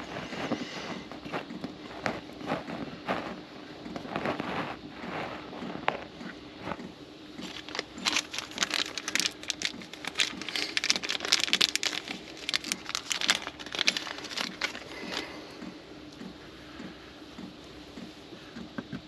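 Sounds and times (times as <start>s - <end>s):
faint low hum: 0.0s - 19.0s
crinkling and clicking from handling: 5.6s - 16.3s.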